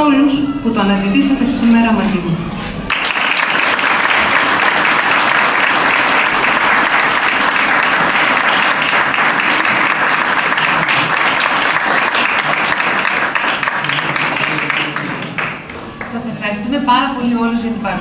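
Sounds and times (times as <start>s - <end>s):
audience applauding: 2.9s - 16.2s.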